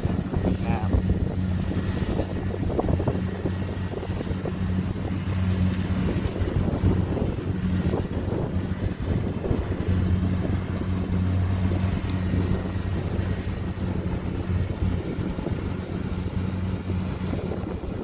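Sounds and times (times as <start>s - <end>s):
combine harvester engine droning: 0.0s - 18.0s.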